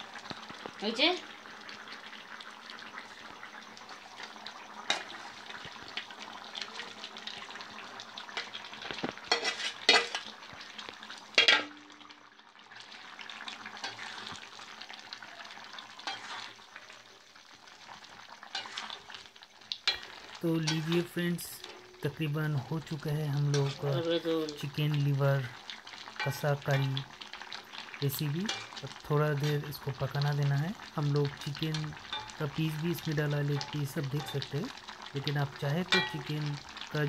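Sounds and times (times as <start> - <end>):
curry sizzling in a pan: 0.0 - 37.0
metal spatula scraping pan: 8.4 - 10.3, 11.4 - 11.7, 13.8 - 14.3, 16.0 - 16.6, 18.5 - 19.1, 19.8 - 22.0, 28.4 - 28.8, 31.8 - 32.4
sharp metal clanks: 11.4 - 11.8.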